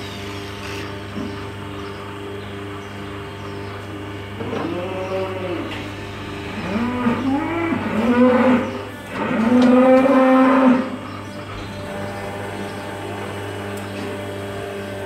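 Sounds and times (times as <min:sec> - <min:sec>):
cow mooing: 0:04.4 - 0:05.8, 0:06.4 - 0:14.8.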